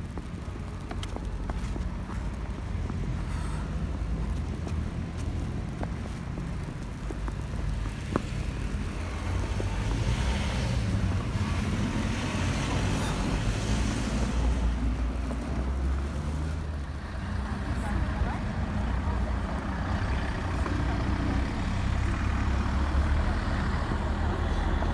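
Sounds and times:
car engine rumble: 0.0s - 24.8s
tyre hiss of passing car: 2.1s - 4.4s, 7.7s - 24.9s.

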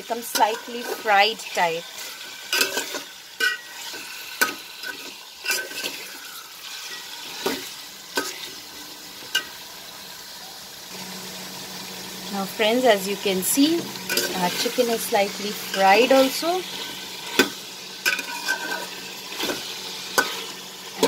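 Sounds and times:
metal spatula scraping pot: 0.0s - 8.6s, 13.7s - 21.0s
chicken sizzling in hot oil: 0.0s - 21.0s.

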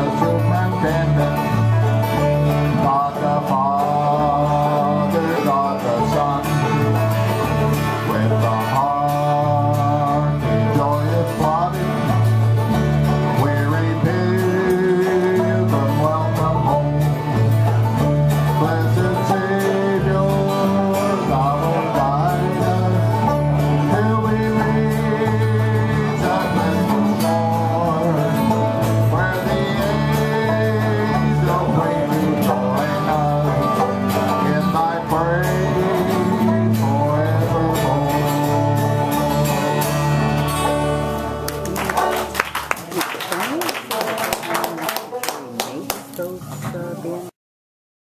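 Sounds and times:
electric bass line: 0.0s - 42.7s
banjo picking: 0.0s - 45.2s
acoustic guitar strumming: 0.0s - 45.4s
voices singing along: 18.6s - 41.5s.

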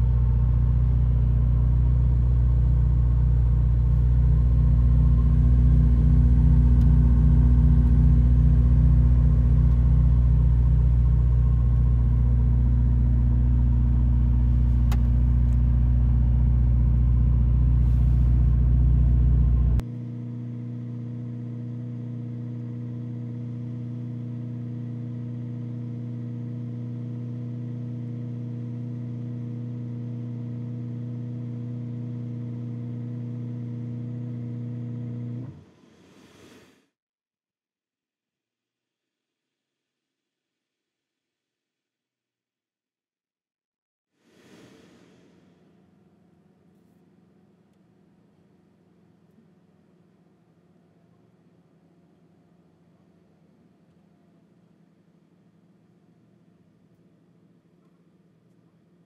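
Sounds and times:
car engine idling: 0.0s - 19.8s.

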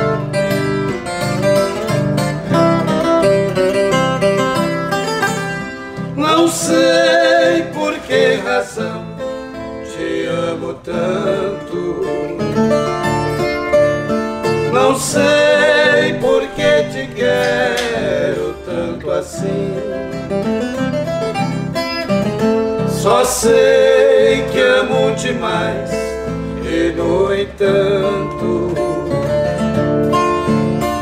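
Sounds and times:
acoustic guitar accompaniment: 0.0s - 31.0s.

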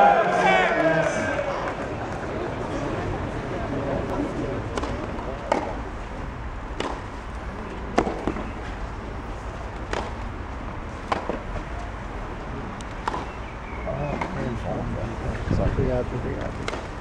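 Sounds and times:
crowd hum: 0.0s - 17.0s
tennis ball hits: 4.7s - 5.8s, 6.7s - 7.2s, 7.9s - 8.5s, 9.8s - 10.2s, 11.0s - 11.6s, 12.9s - 13.4s, 16.4s - 16.9s.

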